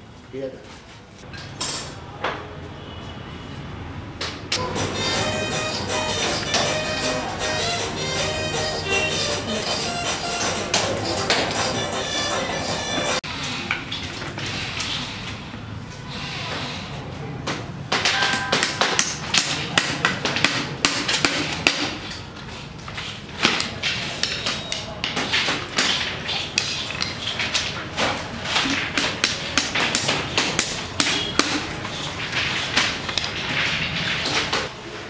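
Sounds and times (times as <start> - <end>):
hammer driving nails: 17.9 - 22.2, 28.5 - 31.7.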